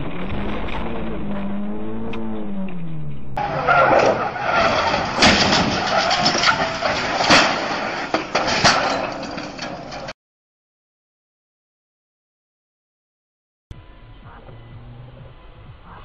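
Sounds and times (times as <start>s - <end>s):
low droning tone: 0.0s - 3.4s, 13.7s - 16.0s
truck engine: 0.0s - 10.2s
tyres skidding and squealing: 0.0s - 10.2s.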